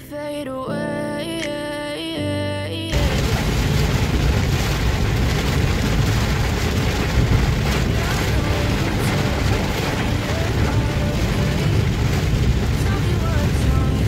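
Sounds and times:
heavy rain on car: 0:02.9 - 0:14.0
tyres and engine rumble: 0:02.9 - 0:14.0.

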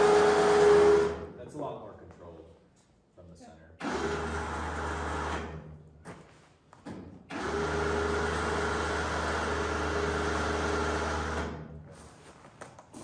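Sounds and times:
electric winch motor running: 0:00.0 - 0:01.3, 0:03.8 - 0:05.7, 0:07.3 - 0:11.8.

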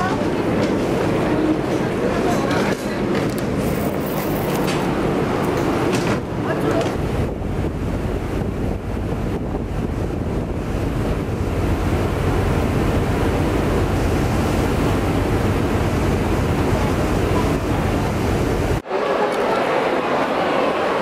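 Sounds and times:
water rushing along hull: 0:00.0 - 0:21.0
wind rushing over microphone: 0:04.9 - 0:18.8.

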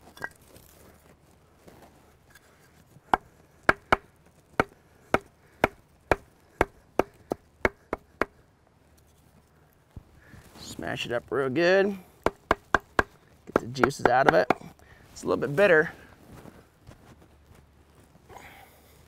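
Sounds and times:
wooden block knocking on wood: 0:03.1 - 0:08.4, 0:12.2 - 0:14.6.

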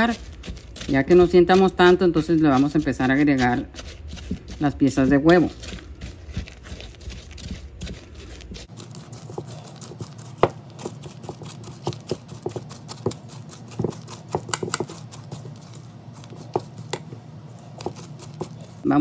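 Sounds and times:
utensil scraping and knocking bowl: 0:00.0 - 0:18.9.

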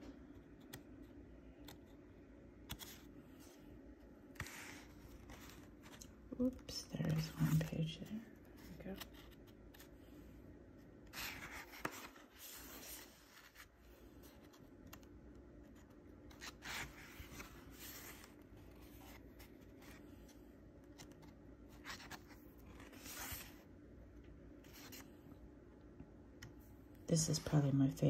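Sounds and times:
paper pages turning: 0:02.6 - 0:03.1, 0:04.4 - 0:06.1, 0:11.1 - 0:15.1, 0:15.7 - 0:23.6, 0:24.6 - 0:25.2.

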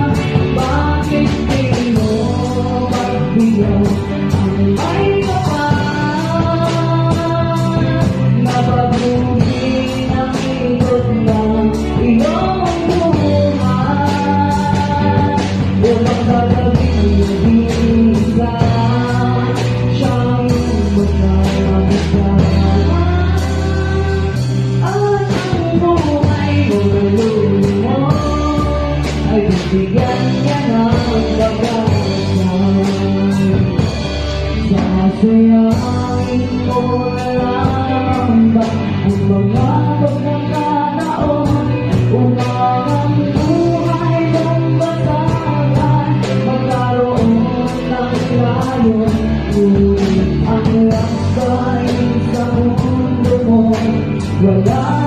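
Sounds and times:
acoustic and electric guitars: 0:00.0 - 0:55.0
drum kit: 0:00.0 - 0:55.0
woman singing into a microphone: 0:00.0 - 0:55.0.

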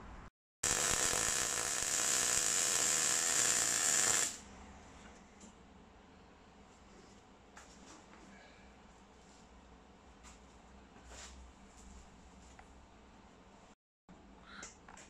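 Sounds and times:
welder arc crackling: 0:00.6 - 0:04.5.

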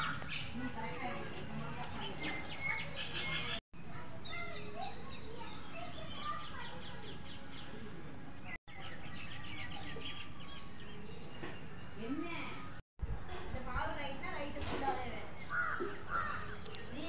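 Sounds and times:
small birds chirping: 0:00.0 - 0:12.8, 0:14.0 - 0:17.0.

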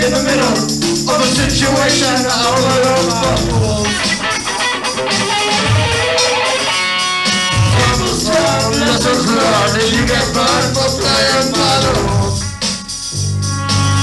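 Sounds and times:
person singing into a microphone: 0:00.0 - 0:04.3, 0:07.7 - 0:12.6
electric guitar: 0:00.0 - 0:13.0
live rock band playing: 0:00.0 - 0:14.0.

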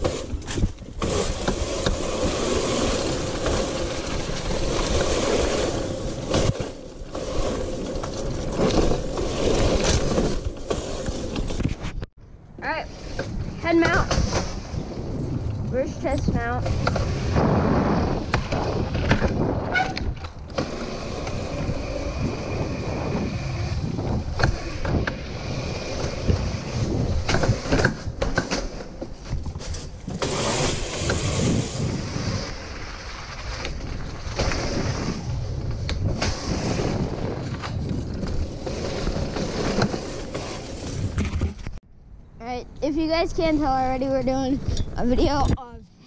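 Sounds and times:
wind buffeting microphone: 0:11.2 - 0:28.4, 0:29.0 - 0:46.0
bike knocks and rattles: 0:13.2 - 0:32.0, 0:33.0 - 0:41.8.

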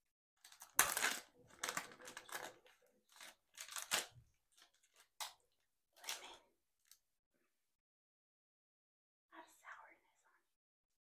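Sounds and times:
candy wrapper handling: 0:00.4 - 0:05.4.

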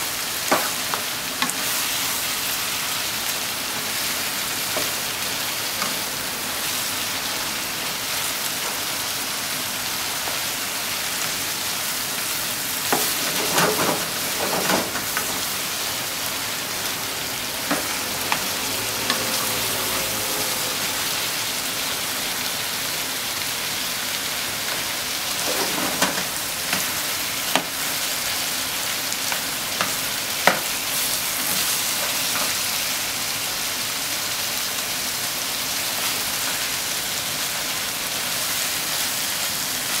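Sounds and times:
food sizzling in a frying pan: 0:00.0 - 0:40.0
spatula scraping a pan: 0:25.4 - 0:26.9.

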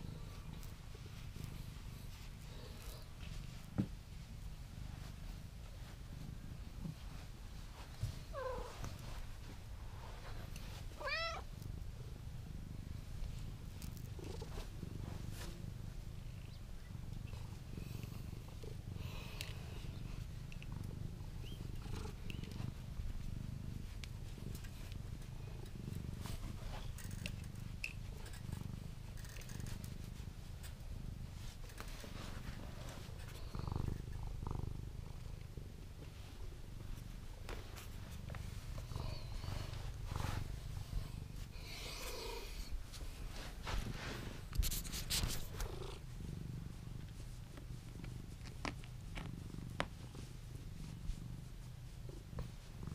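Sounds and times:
cat purring: 0:00.0 - 0:52.9
cat meowing: 0:11.0 - 0:11.5.

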